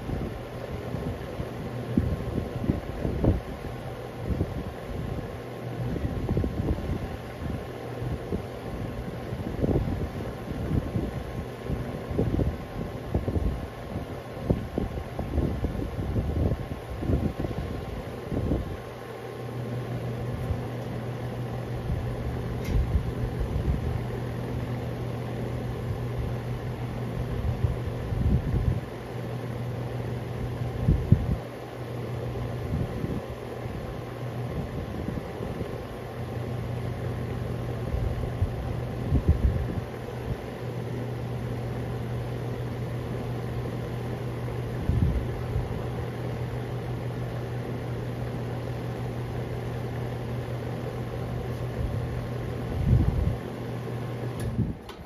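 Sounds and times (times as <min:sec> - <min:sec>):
wind rumble on microphone: 0:00.0 - 0:18.9, 0:21.8 - 0:24.1, 0:25.8 - 0:29.0, 0:30.7 - 0:31.4, 0:32.6 - 0:35.9, 0:37.8 - 0:40.4, 0:44.6 - 0:46.0, 0:51.6 - 0:53.4, 0:54.4 - 0:54.9
air conditioner unit humming: 0:00.0 - 0:55.0.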